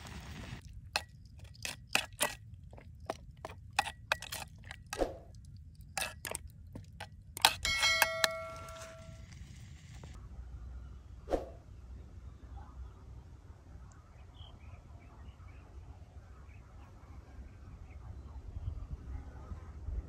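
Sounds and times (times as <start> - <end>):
metal spoon scraping a pot: 1.0 - 9.2.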